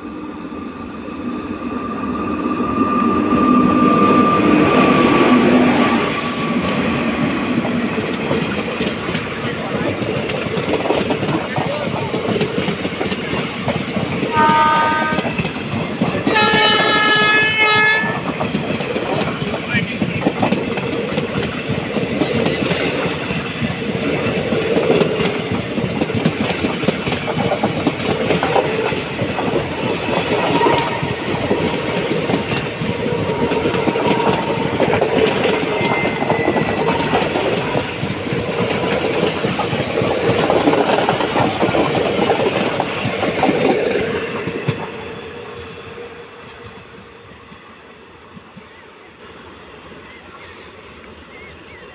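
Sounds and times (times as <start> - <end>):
train coaches running past: 0.0 - 51.9
clickety-clack over rail joints: 4.8 - 45.7.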